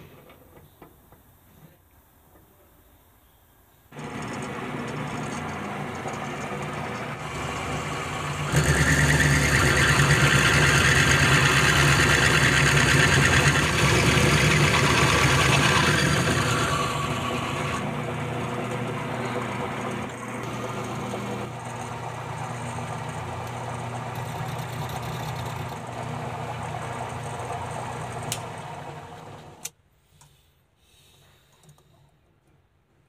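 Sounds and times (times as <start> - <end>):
drill scraping into steel: 4.0 - 17.9
lathe motor humming: 4.0 - 29.7.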